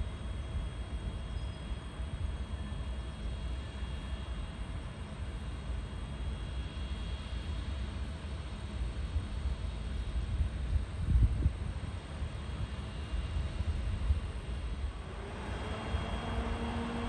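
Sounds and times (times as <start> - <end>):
faint high whine: 0.0 - 8.8, 9.9 - 17.0
low rumble with hiss: 10.1 - 17.0.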